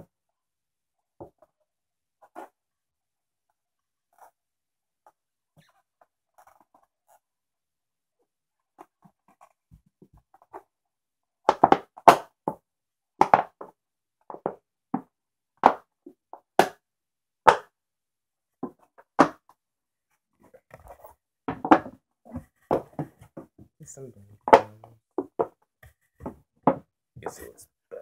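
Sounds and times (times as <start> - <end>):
hard plastic toy parts knocking: 24.5 - 25.6.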